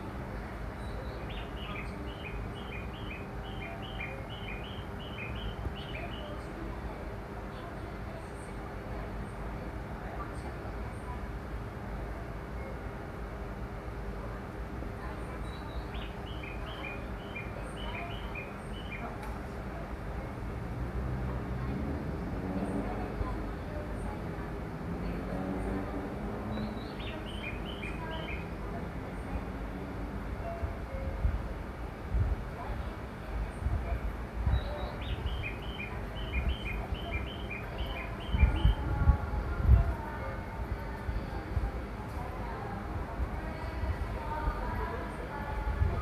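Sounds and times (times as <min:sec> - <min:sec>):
high bird chirps: 0:01.0 - 0:06.3, 0:26.6 - 0:28.5, 0:34.6 - 0:38.8.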